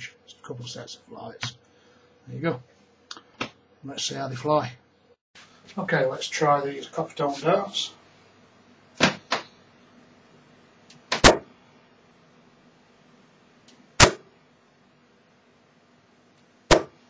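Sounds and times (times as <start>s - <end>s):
darts hitting dartboard: 9.0s - 9.5s, 11.1s - 11.5s, 14.0s - 14.3s, 16.7s - 17.0s.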